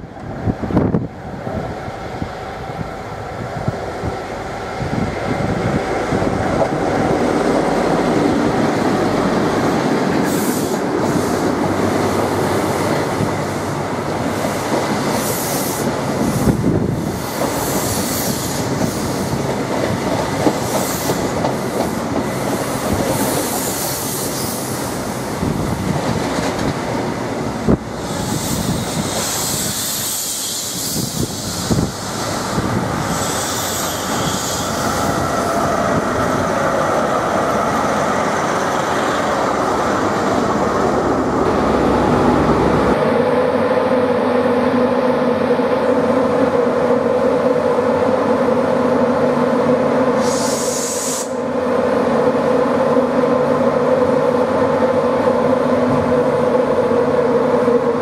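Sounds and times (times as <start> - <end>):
diesel train passing: 0.0 - 58.0
train wheel squeal: 20.6 - 25.0, 28.0 - 39.2, 50.2 - 51.5.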